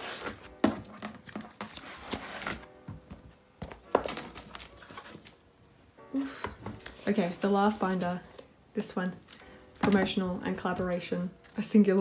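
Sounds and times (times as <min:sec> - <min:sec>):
plastic sleeves rustling: 0:00.0 - 0:05.5.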